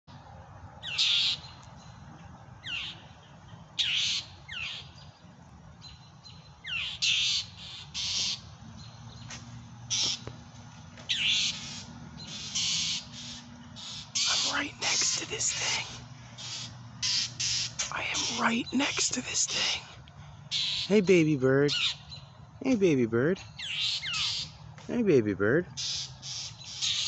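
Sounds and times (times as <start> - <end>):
hawk screeching: 9.9 - 10.2, 11.1 - 19.7.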